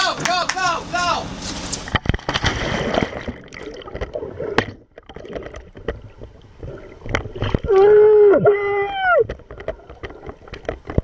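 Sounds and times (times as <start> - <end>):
underwater clicks: 1.9 - 7.9, 9.2 - 11.0
underwater bubbling and gurgling: 1.9 - 11.0.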